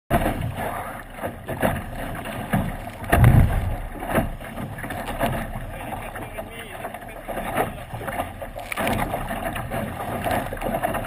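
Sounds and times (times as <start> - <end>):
bow slapping into waves: 0.1 - 11.0
water rushing along a hull: 0.1 - 11.0
wind on microphone: 2.6 - 5.1.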